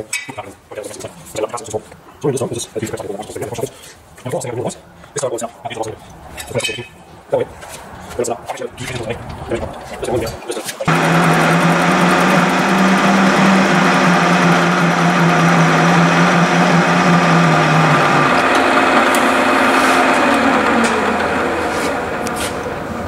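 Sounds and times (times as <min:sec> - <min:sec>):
milling machine cutting metal: 0:10.9 - 0:22.3.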